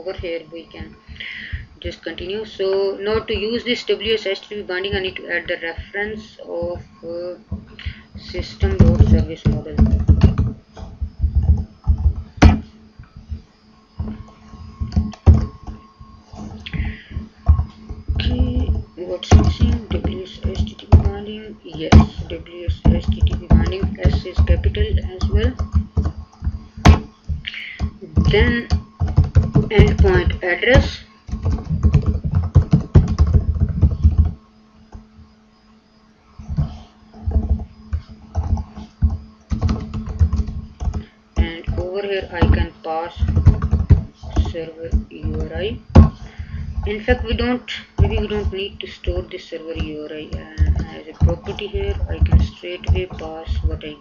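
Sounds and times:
typing on keyboard: 0:18.2 - 0:26.1, 0:26.8 - 0:34.4, 0:37.3 - 0:45.6, 0:49.8 - 0:53.9.

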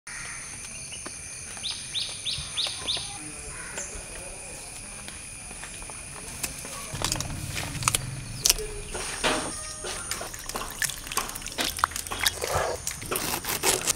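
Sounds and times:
high-pitched insect drone: 0:00.1 - 0:13.9
bird chirping: 0:00.7 - 0:04.5, 0:06.7 - 0:12.9.

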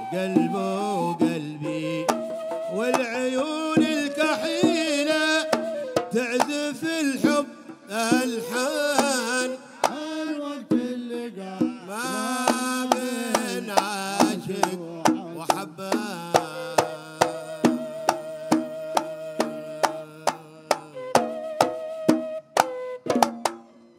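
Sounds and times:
men singing: 0:00.0 - 0:21.4
hand drum beats: 0:02.0 - 0:03.1, 0:07.2 - 0:10.0, 0:11.6 - 0:23.7.

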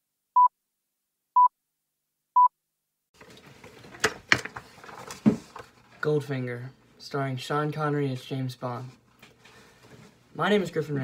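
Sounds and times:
phone handling rustles and knocks: 0:03.2 - 0:05.8.

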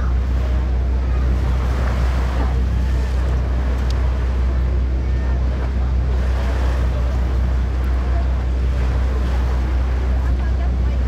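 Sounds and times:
ferry engine droning: 0:00.0 - 0:11.0
water rushing along hull: 0:00.0 - 0:11.0.

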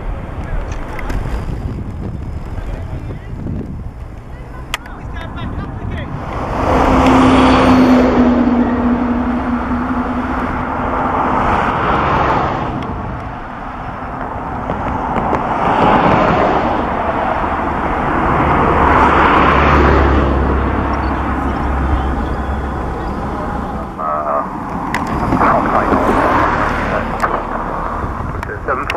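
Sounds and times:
jet plane flying overhead: 0:04.2 - 0:28.9
steady low hum: 0:05.5 - 0:14.6.

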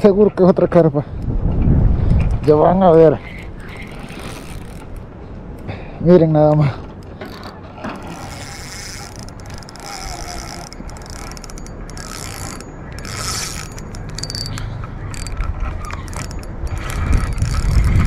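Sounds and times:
fishing reel clicking: 0:03.2 - 0:05.0, 0:07.3 - 0:18.0.

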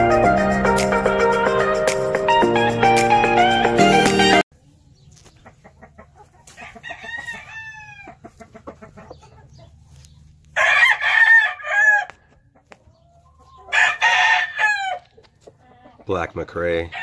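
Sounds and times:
rooster crowing: 0:06.6 - 0:08.2, 0:10.6 - 0:12.2, 0:13.7 - 0:15.1.

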